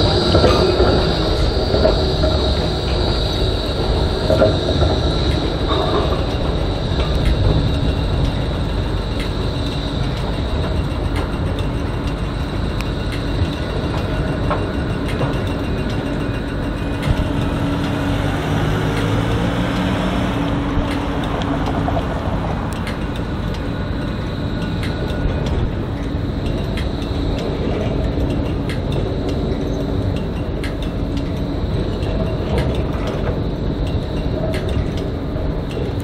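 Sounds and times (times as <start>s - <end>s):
high steady tone: 0.0s - 36.0s
tram wheels rumbling on rail: 0.0s - 36.0s
small clicks of track: 24.6s - 36.0s.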